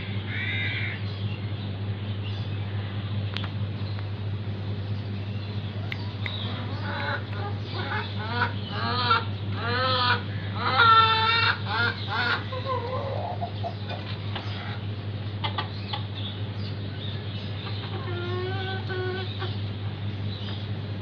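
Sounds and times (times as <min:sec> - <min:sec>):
hen clucking and calling: 0:05.8 - 0:20.0.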